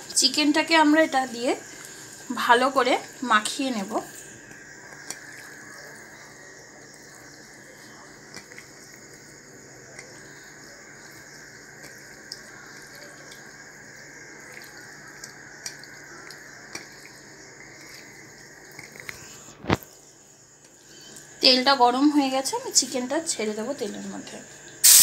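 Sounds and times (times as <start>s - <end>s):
hands squishing raw chicken: 9.9s - 19.3s
steady low hiss: 24.2s - 25.0s.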